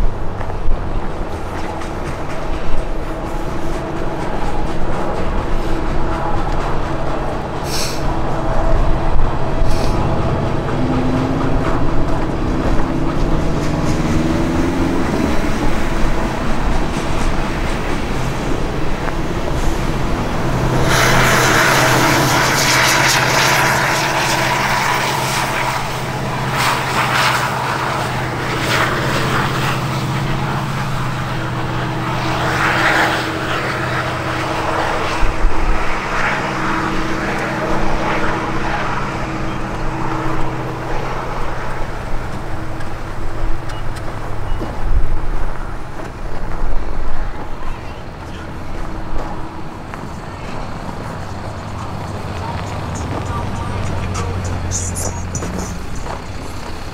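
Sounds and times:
engine running: 0.0s - 56.9s
footsteps crunching in snow: 39.6s - 56.9s.

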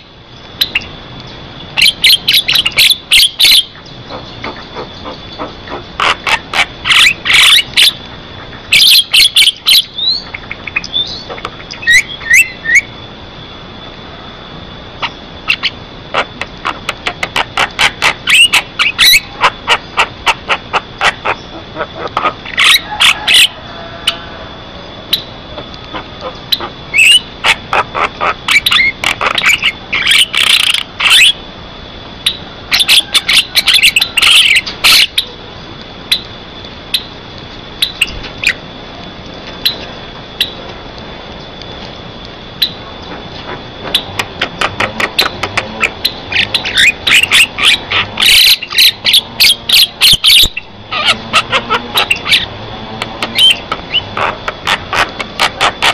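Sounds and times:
bird clicking and chattering: 1.8s - 12.0s, 15.5s - 23.3s, 25.6s - 31.3s, 43.0s - 55.9s.

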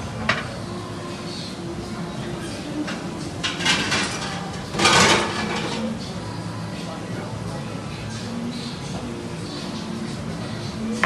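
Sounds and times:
restaurant background noise: 0.0s - 11.0s
dishes and utensils clinking: 2.7s - 6.1s.

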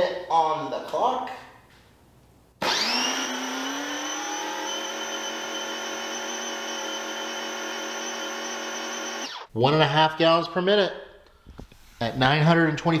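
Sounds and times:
pressure washer motor whining: 2.6s - 9.5s.

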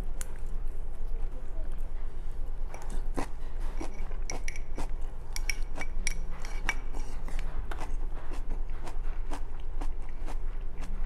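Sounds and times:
chopsticks tapping ceramic bowl: 3.8s - 7.0s.

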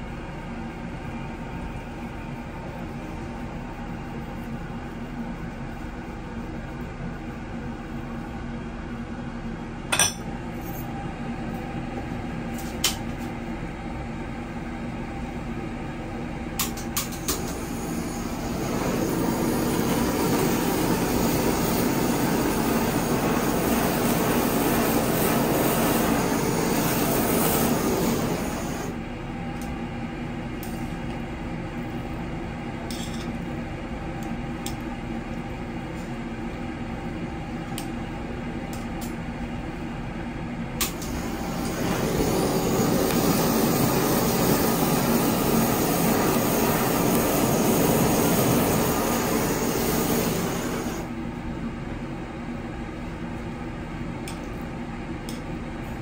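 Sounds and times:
steady mechanical hum: 0.0s - 56.0s
tableware clinking: 9.9s - 10.3s
loud hiss: 17.4s - 29.0s, 40.9s - 51.1s.

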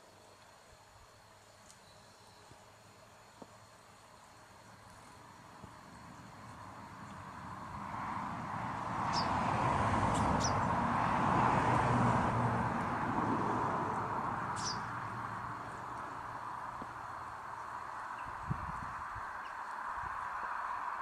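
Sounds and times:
broad rushing noise: 4.4s - 21.0s
high chirps of finches: 9.1s - 9.4s, 10.1s - 10.7s, 14.5s - 14.9s.

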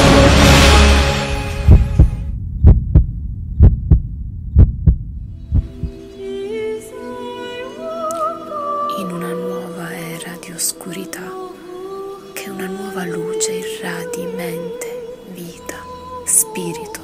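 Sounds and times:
heartbeat thumps: 1.5s - 6.1s
soft sustained music notes: 5.2s - 17.0s.

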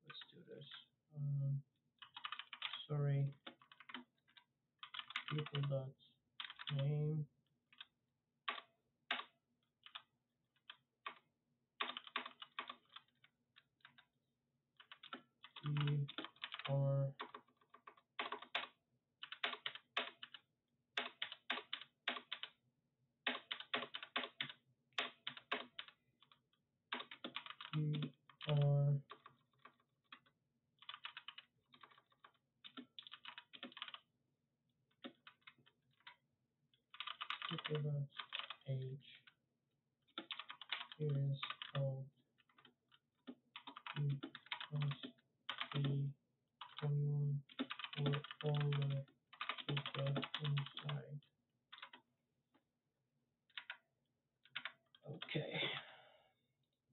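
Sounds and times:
keyboard typing: 2.0s - 5.8s, 6.4s - 7.0s, 8.5s - 10.0s, 11.8s - 14.0s, 14.8s - 20.4s, 21.0s - 22.5s, 23.2s - 34.0s, 36.9s - 38.8s, 40.2s - 52.0s, 53.5s - 53.8s, 54.5s - 55.9s.

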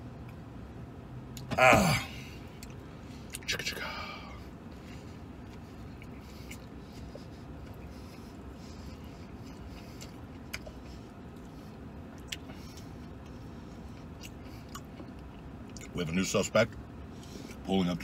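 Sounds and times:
vehicle cab rumble: 0.0s - 18.0s
man chewing: 2.3s - 15.9s.

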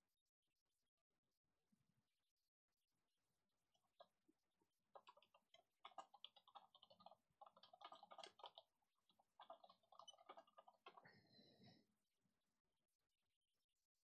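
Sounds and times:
small rapid clicks: 3.8s - 11.7s.

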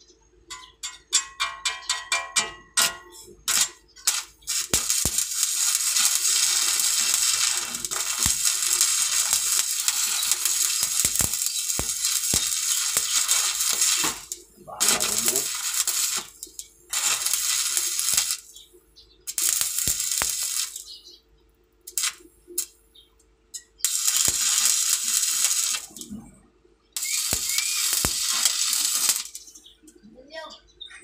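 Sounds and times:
arc welding crackling: 1.2s - 21.1s, 21.8s - 26.3s, 26.9s - 29.7s.

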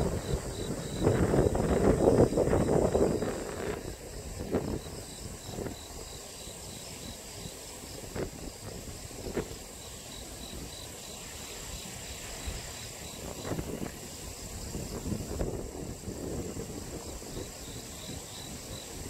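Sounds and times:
high-pitched insect trill: 0.0s - 19.0s
insects chirping: 0.0s - 19.0s.

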